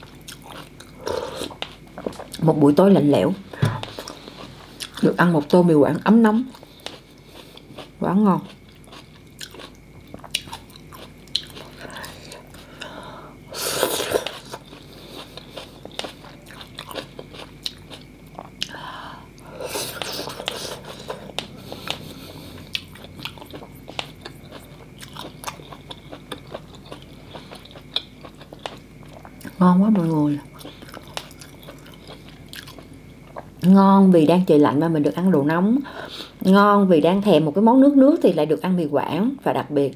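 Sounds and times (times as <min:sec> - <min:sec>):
wet chewing: 0:06.5 - 0:13.0, 0:13.8 - 0:18.8, 0:19.8 - 0:33.5.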